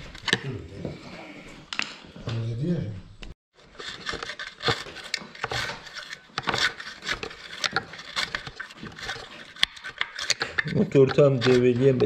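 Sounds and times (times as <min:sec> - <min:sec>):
screwdriver scraping debris: 0:03.6 - 0:12.0.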